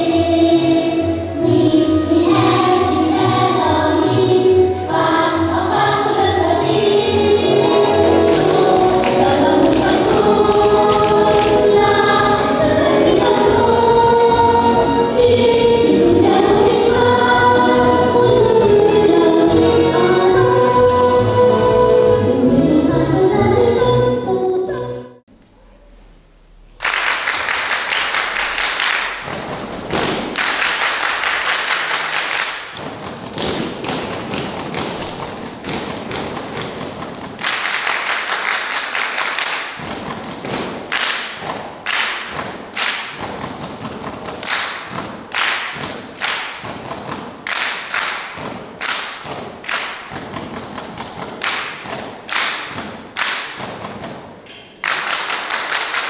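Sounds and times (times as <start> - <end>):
group clapping and slapping: 8.0 - 12.4, 26.8 - 56.0.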